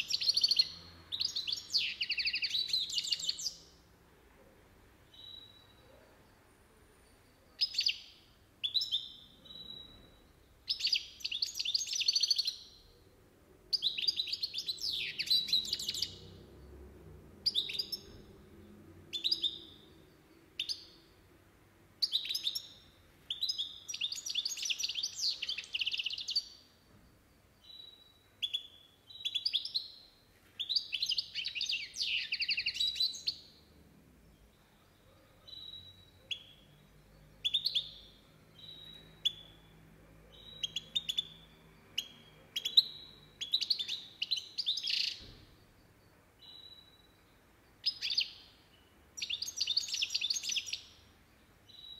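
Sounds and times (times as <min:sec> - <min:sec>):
goldfinch single chirps: 0:00.0 - 0:03.7, 0:07.6 - 0:12.9, 0:13.7 - 0:16.3, 0:17.4 - 0:18.4, 0:19.1 - 0:21.1, 0:22.0 - 0:26.7, 0:27.6 - 0:33.6, 0:34.9 - 0:51.9
goldfinch twittering song: 0:00.0 - 0:03.7, 0:07.6 - 0:12.9, 0:13.7 - 0:16.8, 0:17.4 - 0:21.1, 0:22.0 - 0:26.7, 0:34.3 - 0:51.9.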